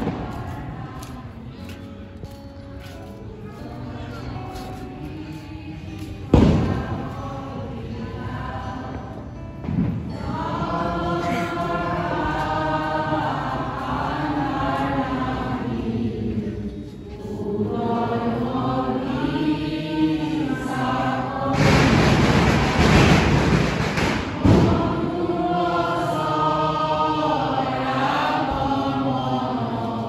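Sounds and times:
voices singing a hymn: 0.0 - 30.0
loud rushing noise: 21.3 - 26.0.

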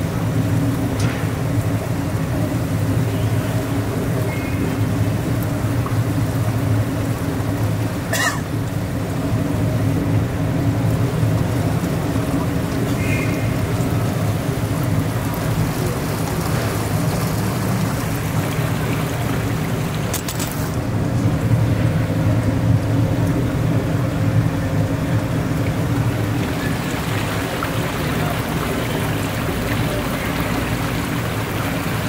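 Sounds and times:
boat motor droning: 0.0 - 32.0.

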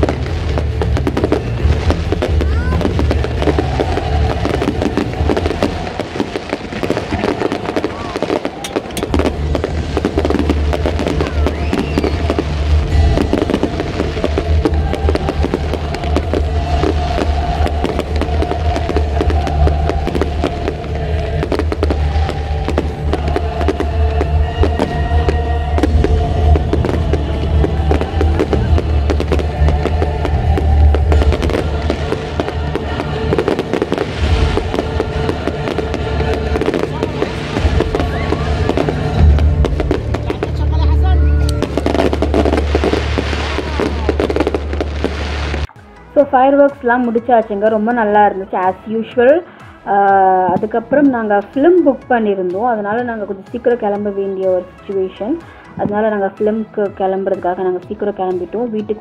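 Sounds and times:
fireworks bangs and crackles: 0.0 - 46.2, 46.8 - 54.7
music with deep bass: 0.0 - 59.0.

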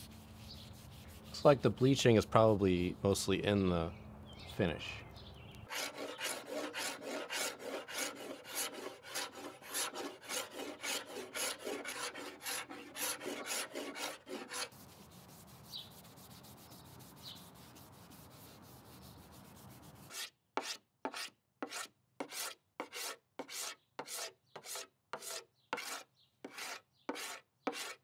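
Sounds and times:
hand scraper rasping on wood: 5.7 - 28.0.

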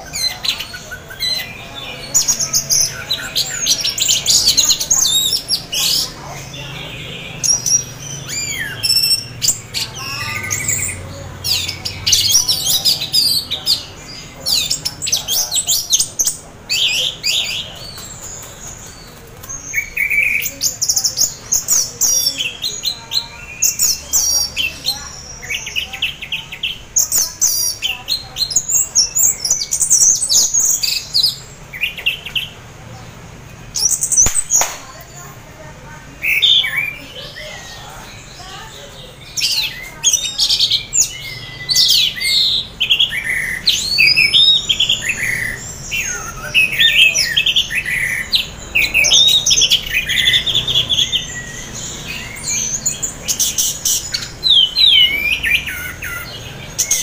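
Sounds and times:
thrush singing chirps and trills: 0.0 - 57.0.

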